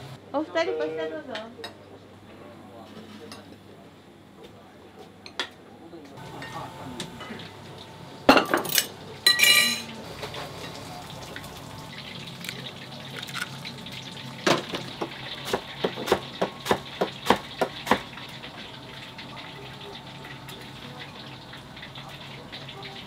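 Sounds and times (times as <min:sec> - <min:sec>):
dishes and utensils clattering: 0:08.3 - 0:10.8.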